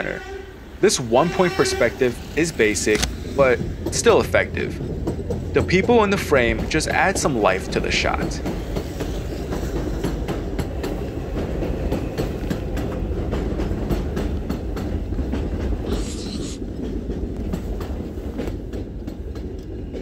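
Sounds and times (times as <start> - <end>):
subway train rumbling: 0.0 - 20.0
wheels clacking over rail joints: 1.1 - 15.9
short hiss: 15.9 - 16.6.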